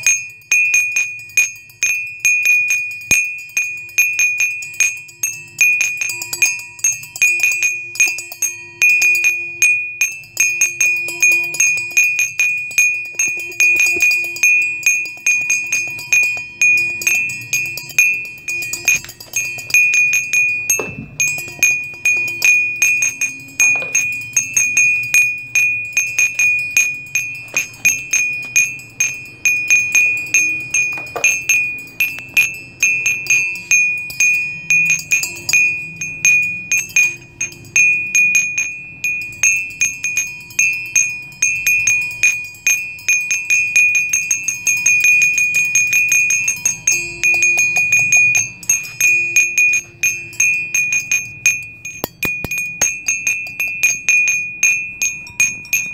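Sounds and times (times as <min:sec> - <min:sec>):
chimes tinkling: 0:00.0 - 0:55.9.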